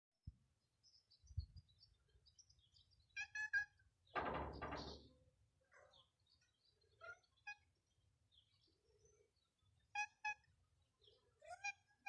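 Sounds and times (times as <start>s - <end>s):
small birds chirping: 0.2s - 12.0s.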